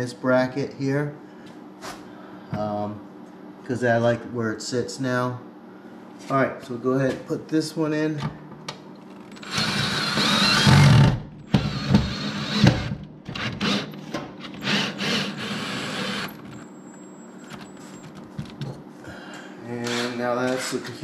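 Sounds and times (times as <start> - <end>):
power drill driving screws: 9.3 - 16.8, 19.8 - 20.2.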